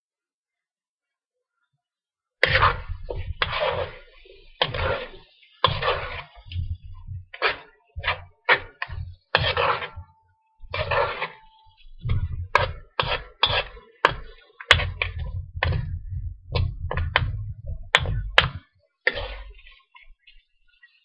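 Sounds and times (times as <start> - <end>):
metal spoon scraping a wok: 2.4 - 16.0, 19.1 - 20.0.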